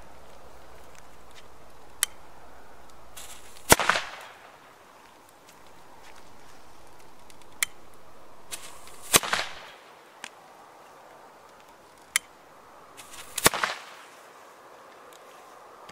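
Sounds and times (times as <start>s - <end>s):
firecracker fuse hissing: 2.8s - 9.8s, 13.0s - 14.2s
firecracker bang with crackle: 3.2s - 4.5s, 8.5s - 9.8s, 13.0s - 14.0s
small clicks: 5.0s - 10.4s, 11.4s - 12.4s.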